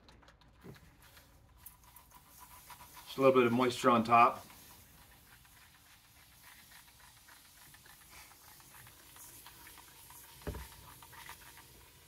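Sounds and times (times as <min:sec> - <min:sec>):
water sprinkling patter: 0:00.6 - 0:12.0
thump: 0:10.4 - 0:10.7.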